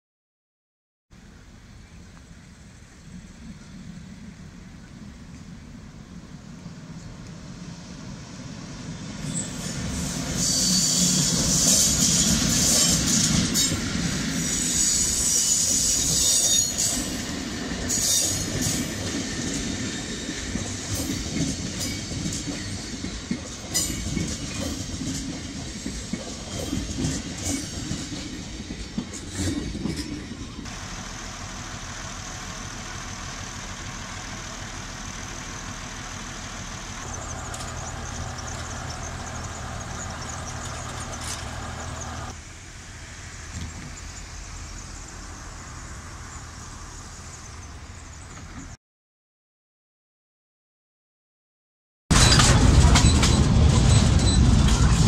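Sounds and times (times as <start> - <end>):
train wheels clicking and squealing: 8.9 - 42.4, 52.1 - 55.0
steady low hum: 30.8 - 42.3.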